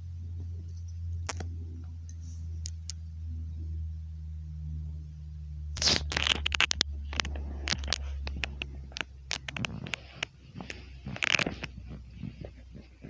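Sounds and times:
low steady hum: 0.0s - 13.0s
kittens scuffling: 5.8s - 13.0s.

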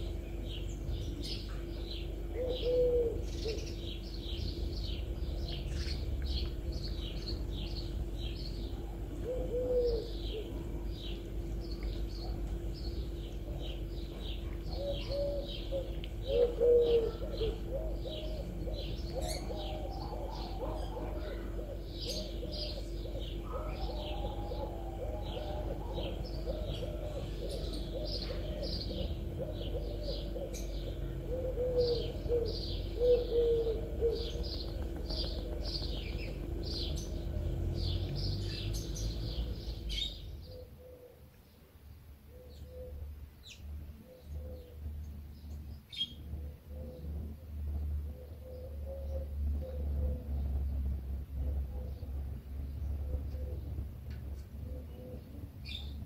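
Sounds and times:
small birds chirping: 0.0s - 56.0s
low cooing: 2.3s - 3.8s, 8.8s - 10.9s, 14.4s - 41.3s, 42.3s - 43.2s, 46.4s - 56.0s.

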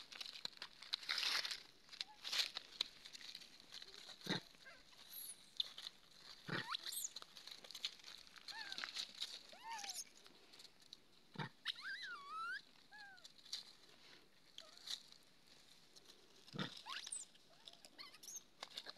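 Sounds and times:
baby macaques squeaky cries: 6.5s - 7.2s, 9.5s - 10.1s, 11.6s - 13.3s, 16.8s - 18.5s.

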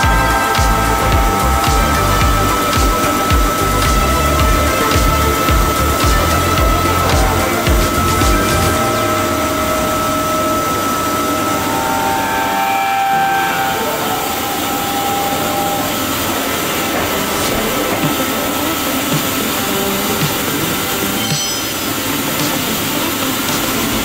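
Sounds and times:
machining centre running: 0.0s - 24.0s
whining drive tones: 0.0s - 24.0s.

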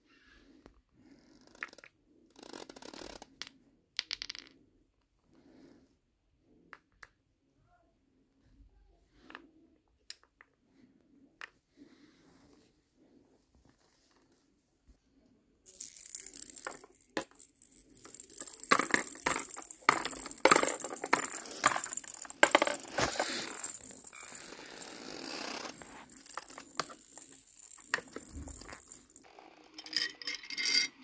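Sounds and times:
small hard objects clattering: 15.7s - 30.8s.

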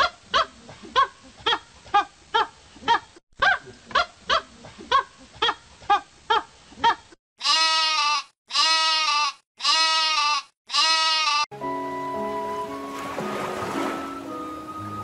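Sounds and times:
goat bleating: 7.4s - 11.5s.

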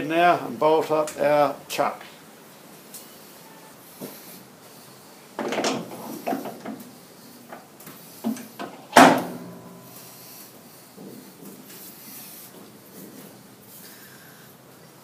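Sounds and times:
metal parts clunking and scraping: 5.4s - 6.9s.

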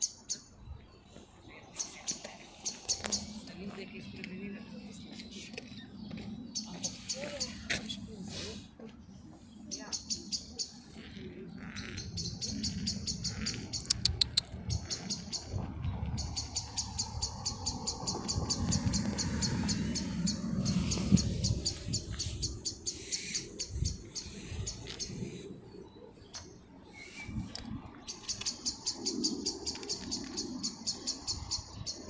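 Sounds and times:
bird chirping rapidly: 9.6s - 25.4s, 28.0s - 32.0s.

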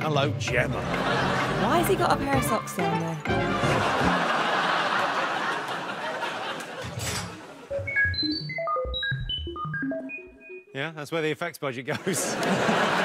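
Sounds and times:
studio audience laughing: 0.7s - 2.2s, 3.4s - 7.7s, 11.9s - 13.0s
electronic bleeps: 7.7s - 10.8s.

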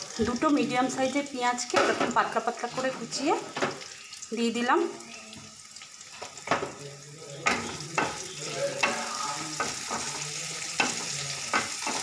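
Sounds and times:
onions sizzling in oil: 0.0s - 12.0s
spatula scraping pan: 7.4s - 12.0s.

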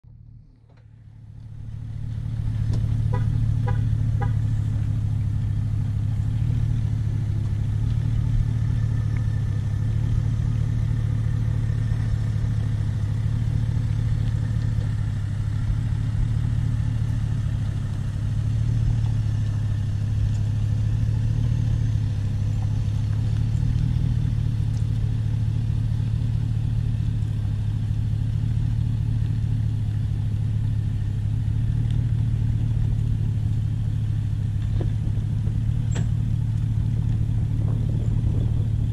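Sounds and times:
engine running at low speed: 0.0s - 38.9s.

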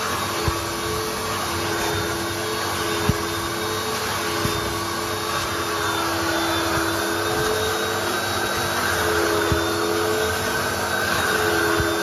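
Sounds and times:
vacuum motors whining: 0.0s - 12.0s.

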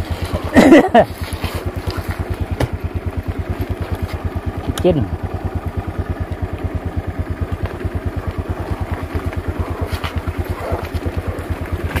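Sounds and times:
motorcycle engine putter: 0.0s - 12.0s.

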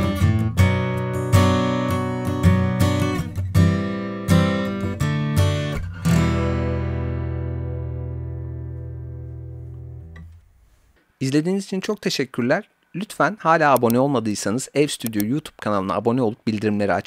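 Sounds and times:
acoustic guitar strumming chords: 0.0s - 10.3s.

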